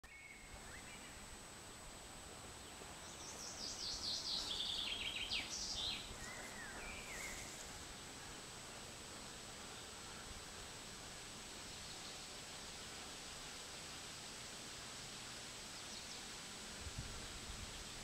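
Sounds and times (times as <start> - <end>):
songbird singing: 0.0 - 1.4, 2.4 - 14.2, 15.6 - 18.0
background hiss: 0.0 - 18.0
bird chirps: 3.0 - 7.6.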